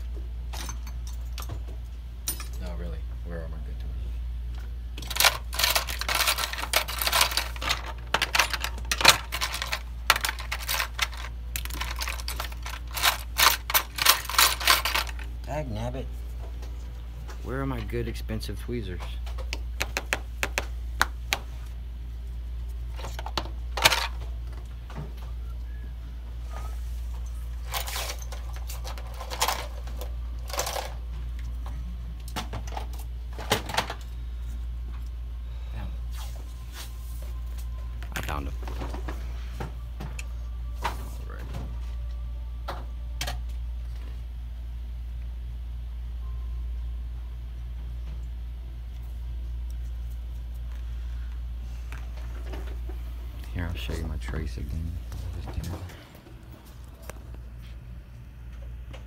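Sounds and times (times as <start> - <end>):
steady low hum: 0.0 - 59.0
rummaging through small tools: 5.0 - 15.3, 22.9 - 24.6, 27.1 - 31.6.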